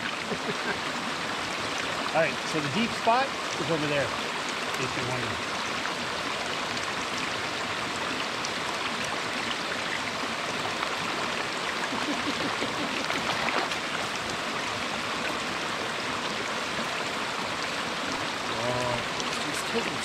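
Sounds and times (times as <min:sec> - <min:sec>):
flowing creek water: 0:00.0 - 0:20.0
fish splashing out of water: 0:12.3 - 0:14.2.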